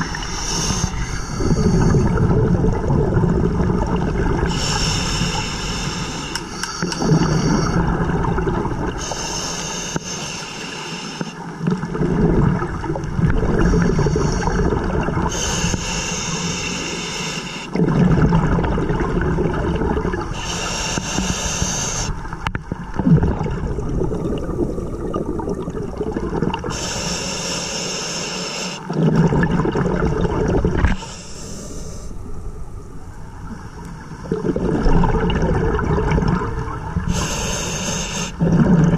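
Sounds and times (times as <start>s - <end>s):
bubbling exhaled air: 0.0s - 32.3s, 34.2s - 38.9s
regulator hissing inhalations: 0.2s - 2.0s, 4.5s - 7.8s, 9.0s - 11.4s, 13.6s - 14.6s, 15.3s - 17.8s, 20.4s - 22.2s, 26.7s - 28.9s, 30.9s - 32.1s, 37.1s - 38.4s.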